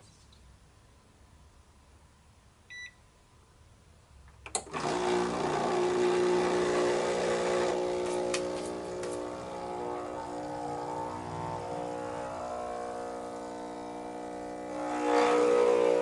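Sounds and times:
scale beep: 2.7 - 3.0
espresso pump humming: 4.8 - 16.0.

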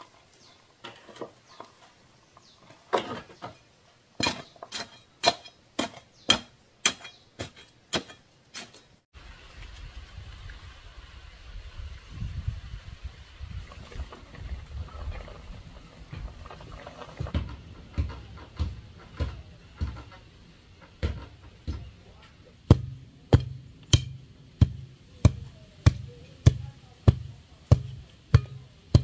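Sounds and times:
pounding on wooden post: 20.9 - 22.0, 22.7 - 29.0.

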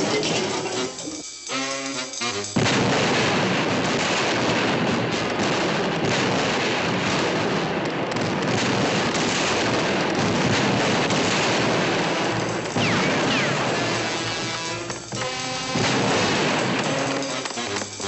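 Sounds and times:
music notes: 0.0 - 2.9, 12.4 - 18.0
falling whistles: 12.8 - 13.6.

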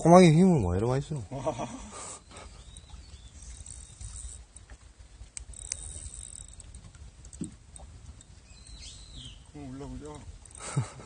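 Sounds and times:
wind rumbling on microphone: 0.0 - 11.0
faint clicks: 2.6 - 8.4.

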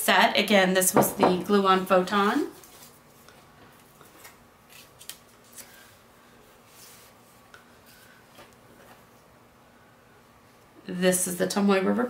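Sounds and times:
paper cards clicking and rustling: 4.0 - 5.8.

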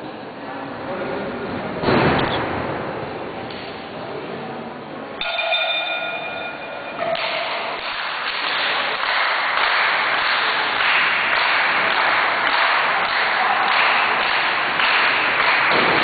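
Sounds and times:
crowd applauding: 7.2 - 16.0.

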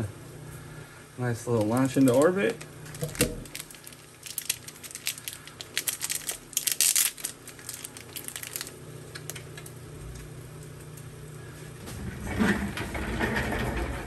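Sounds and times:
steady low hum: 0.0 - 14.0
foil wrapper crinkling: 1.2 - 10.3.

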